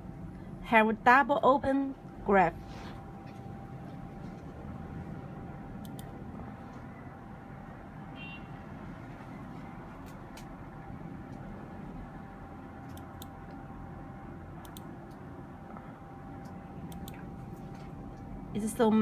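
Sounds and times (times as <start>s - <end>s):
room noise hum: 0.0s - 19.0s
computer mouse clicking: 5.8s - 6.1s, 12.8s - 13.6s, 14.6s - 15.2s, 16.4s - 17.2s.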